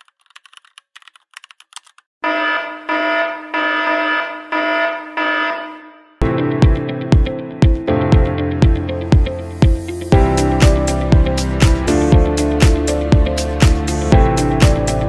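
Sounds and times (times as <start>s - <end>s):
keyboard typing clicks: 0.0s - 2.0s
electronic music beat: 6.3s - 15.0s.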